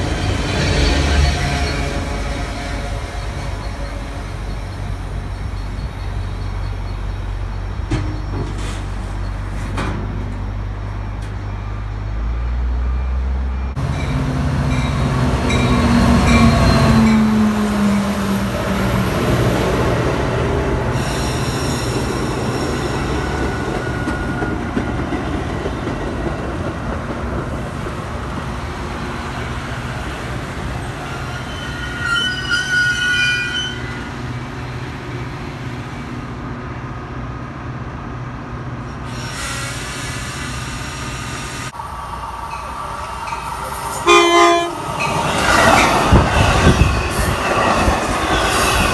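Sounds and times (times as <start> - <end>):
wheels rumbling on rails: 0.0 - 39.4, 40.5 - 48.9
train passing: 0.0 - 48.9
wheel squeals: 30.8 - 34.2.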